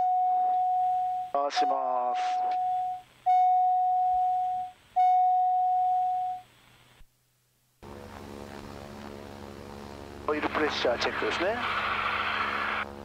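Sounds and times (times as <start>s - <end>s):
long electronic beep tone: 0.0s - 6.4s
propeller aircraft engine idling: 7.8s - 11.0s.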